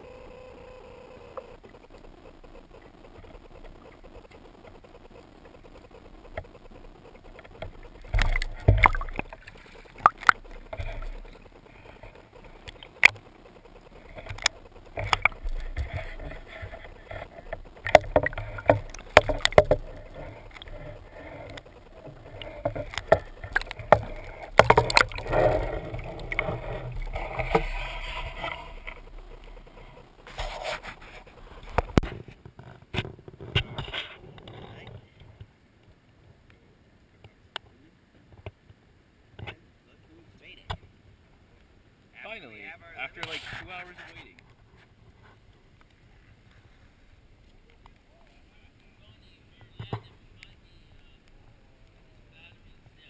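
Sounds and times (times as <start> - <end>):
water rushing: 0.0 - 32.1.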